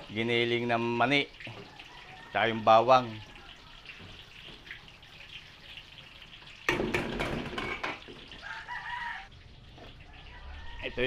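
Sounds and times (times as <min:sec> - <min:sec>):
rooster crowing: 0:01.6 - 0:03.8, 0:08.4 - 0:09.3, 0:10.1 - 0:11.0.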